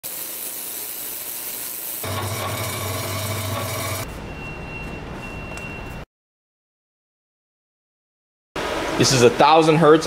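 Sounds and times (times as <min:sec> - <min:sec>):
thin high whine: 0:02.0 - 0:04.1.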